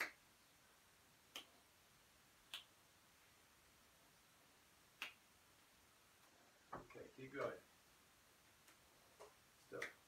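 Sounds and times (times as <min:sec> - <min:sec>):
hand claps: 0:00.0 - 0:00.2, 0:01.3 - 0:01.5, 0:05.0 - 0:05.2, 0:09.7 - 0:10.0.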